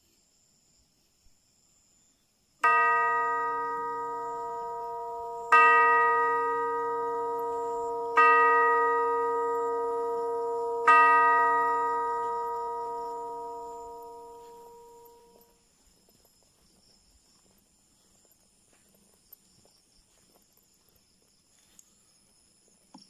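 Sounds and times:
deep bell ringing: 0:02.6 - 0:15.5.

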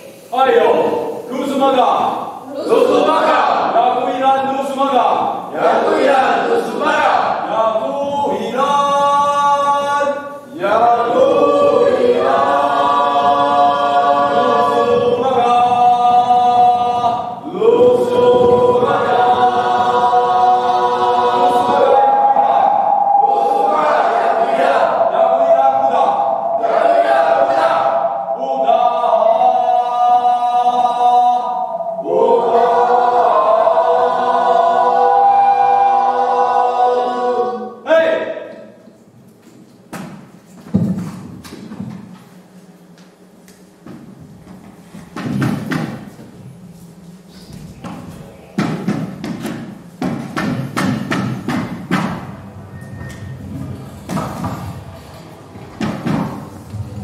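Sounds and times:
choir singing held notes: 0:00.0 - 0:38.6, 0:51.6 - 0:57.0
wordless choral chanting: 0:00.0 - 0:38.8, 0:47.8 - 0:57.0.

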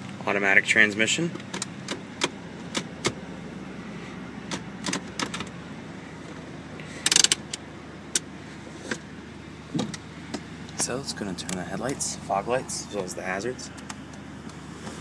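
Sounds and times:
low engine idle: 0:00.0 - 0:15.0
gear shifter and handbrake clicks: 0:01.3 - 0:03.2, 0:04.4 - 0:05.6, 0:07.0 - 0:09.1, 0:09.7 - 0:12.0, 0:12.9 - 0:15.0.

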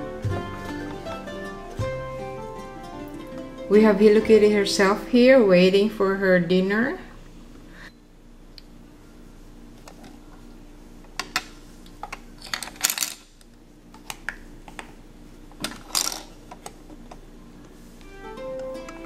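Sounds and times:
faint steady hum: 0:00.0 - 0:19.0
plastic pieces rattling: 0:12.4 - 0:13.2, 0:15.6 - 0:16.3.

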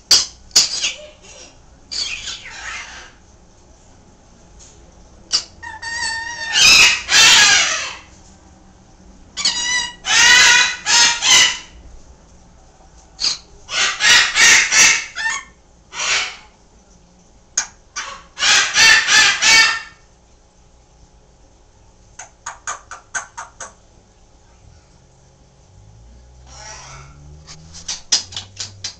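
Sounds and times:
parrots squawking: 0:00.1 - 0:01.3, 0:01.9 - 0:03.2, 0:05.3 - 0:08.1, 0:09.4 - 0:11.8, 0:13.2 - 0:16.5, 0:18.0 - 0:20.0, 0:26.4 - 0:28.9.

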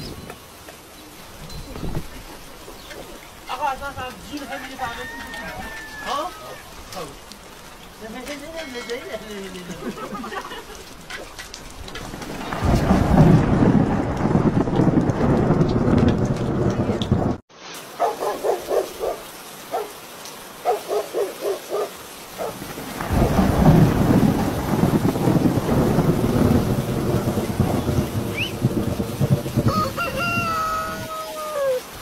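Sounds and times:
rain falling: 0:00.0 - 0:32.0
low thunder rumbling: 0:11.6 - 0:17.4, 0:22.4 - 0:31.9.

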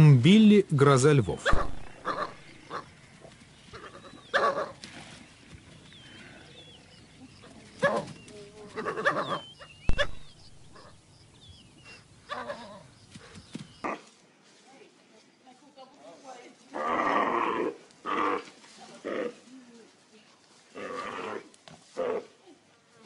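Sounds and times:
wild dogs twittering: 0:01.3 - 0:04.8, 0:06.0 - 0:14.1
sharp thump: 0:01.5 - 0:02.1.

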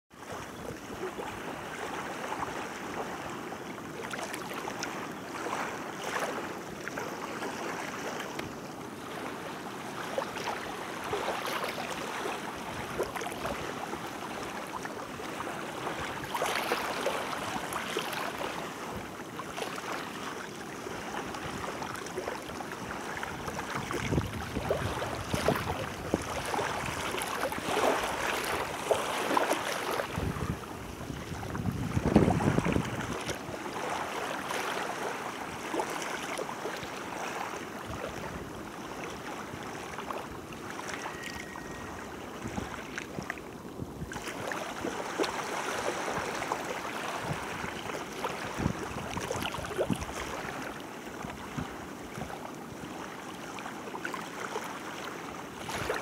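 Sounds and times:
small waves lapping on shore: 0:00.1 - 0:56.0
wind buffeting microphone: 0:23.3 - 0:28.8, 0:30.0 - 0:33.5, 0:48.5 - 0:50.4.

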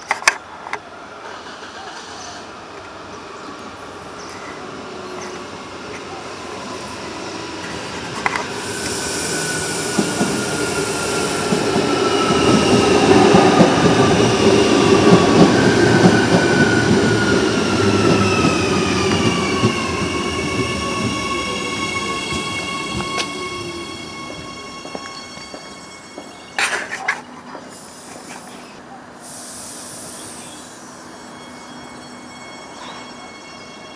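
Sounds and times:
train rumble and wheels on rails: 0:00.0 - 0:33.9
high whining tones: 0:14.3 - 0:28.8.

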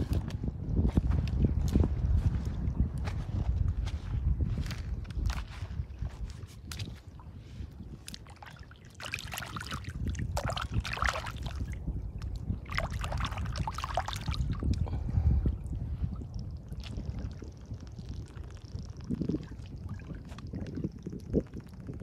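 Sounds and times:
low steady rumble: 0:00.0 - 0:22.0
shallow water splashing: 0:05.3 - 0:14.7.

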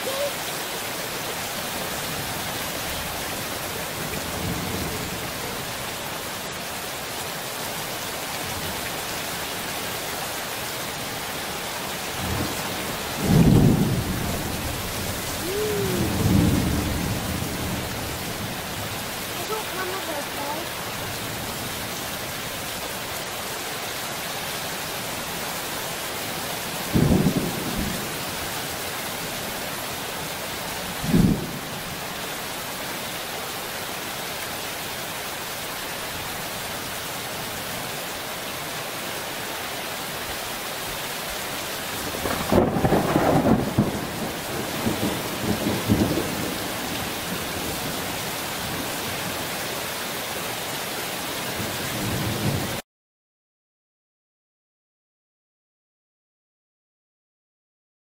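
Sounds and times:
steady rain: 0:00.0 - 0:52.8
thunder: 0:12.2 - 0:18.1, 0:26.9 - 0:28.1, 0:31.0 - 0:31.7, 0:42.0 - 0:46.9.

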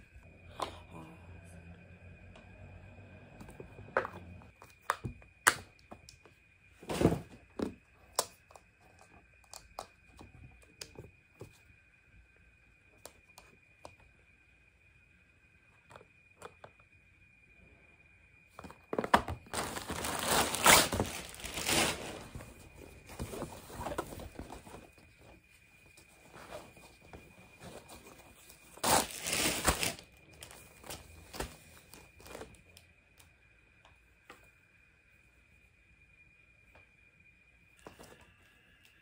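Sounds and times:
plastic-wrapped parcels crinkling: 0:19.0 - 0:24.9, 0:28.8 - 0:31.5
cloth bag rustling: 0:19.5 - 0:24.9, 0:28.7 - 0:30.5.

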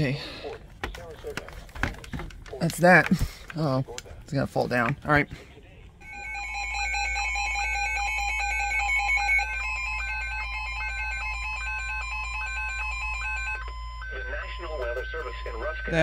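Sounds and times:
steady electronic alarm tones: 0:06.0 - 0:16.0.

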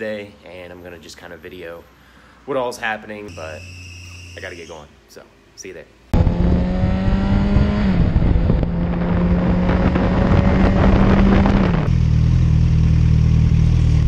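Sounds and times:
wind rush: 0:06.2 - 0:11.9.

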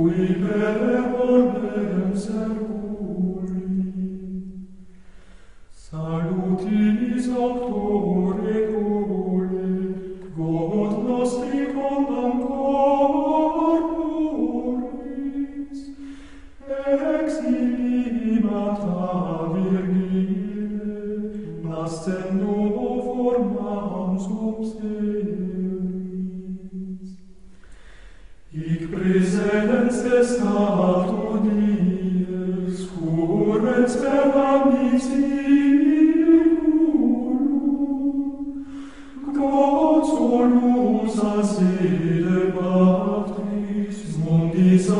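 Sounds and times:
choir singing plainchant in unison: 0:00.0 - 0:04.5, 0:05.8 - 0:16.0, 0:16.6 - 0:27.0, 0:28.5 - 0:44.9.

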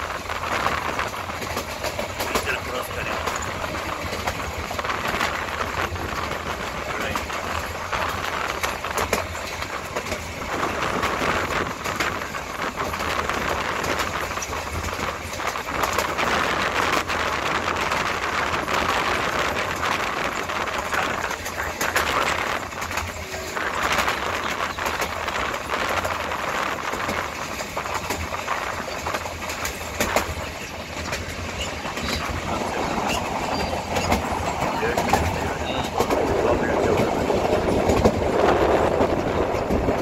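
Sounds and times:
moving vehicle rushing and rattling: 0:00.0 - 0:40.0.

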